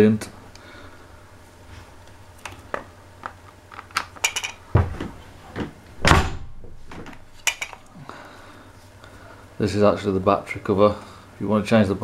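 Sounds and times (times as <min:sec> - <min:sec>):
heavy thumps: 0:04.7 - 0:07.3.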